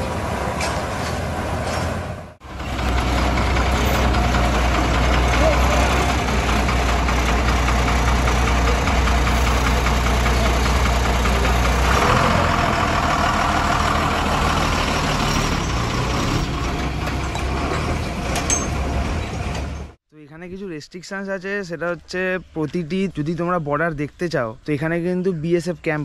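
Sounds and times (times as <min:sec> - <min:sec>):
road noise: 0:00.0 - 0:20.0
vehicle engine running: 0:00.0 - 0:20.0.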